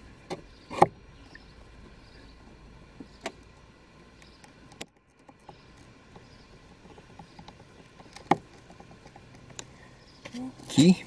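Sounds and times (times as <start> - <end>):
light ticking: 3.0 - 10.4.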